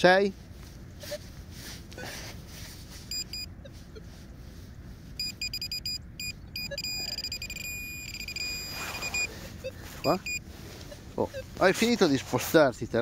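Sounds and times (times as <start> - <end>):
pinpointer beeping: 3.1 - 3.5, 5.2 - 11.6.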